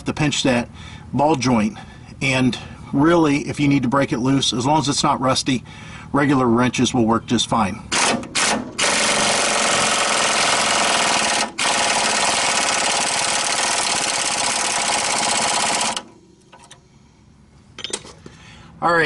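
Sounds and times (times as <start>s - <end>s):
pneumatic impact wrench hammering: 7.9s - 16.8s.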